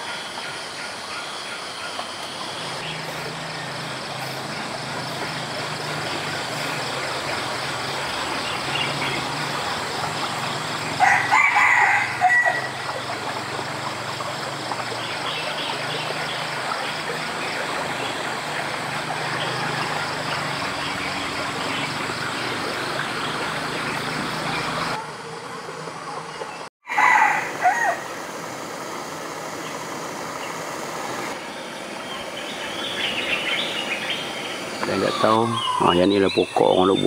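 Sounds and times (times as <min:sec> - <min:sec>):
rooster crowing: 0:11.0 - 0:12.9, 0:26.8 - 0:28.1.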